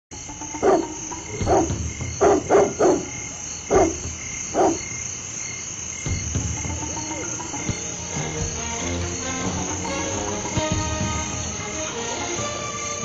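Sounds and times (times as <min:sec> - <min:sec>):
frogs croaking: 0:00.1 - 0:13.0
steady high hiss: 0:00.2 - 0:13.0.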